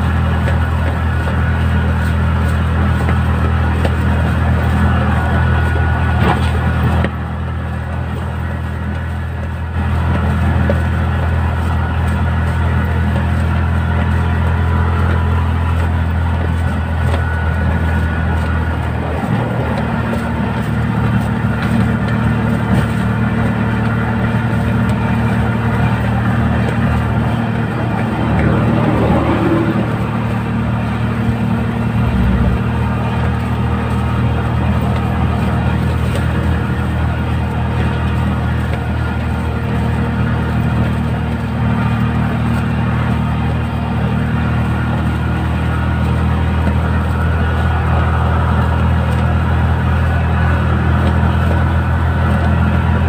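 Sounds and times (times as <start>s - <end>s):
road noise: 0.0s - 53.0s
vehicle engine running: 0.0s - 53.0s.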